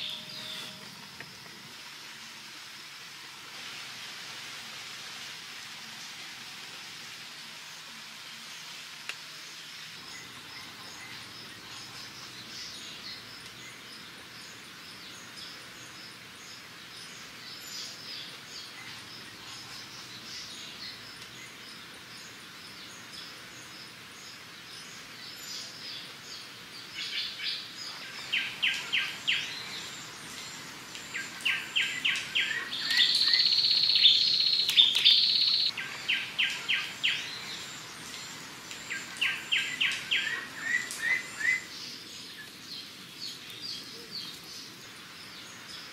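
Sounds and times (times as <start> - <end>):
birds calling: 25.3 - 45.9.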